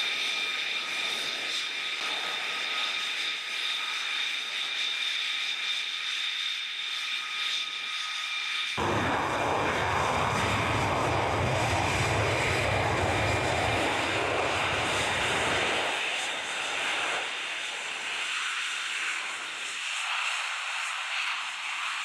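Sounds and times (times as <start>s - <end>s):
jet taking off: 8.8s - 21.8s.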